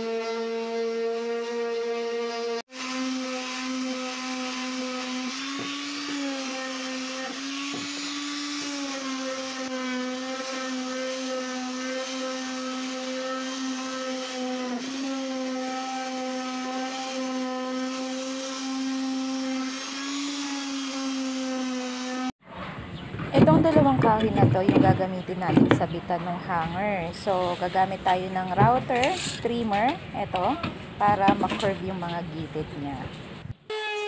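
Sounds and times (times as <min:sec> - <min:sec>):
orbital sander on wood: 0:00.0 - 0:22.4.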